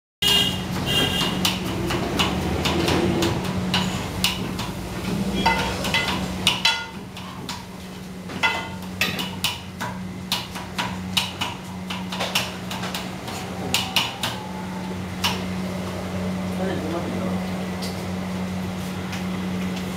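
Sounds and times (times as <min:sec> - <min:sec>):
steady low hum: 0:00.7 - 0:19.9
metal utensils and pots clinking: 0:05.3 - 0:07.6, 0:08.4 - 0:09.9.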